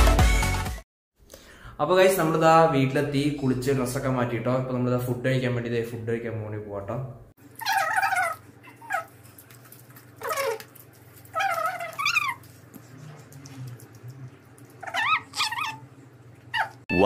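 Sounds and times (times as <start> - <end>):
steady low hum: 12.0 - 16.6.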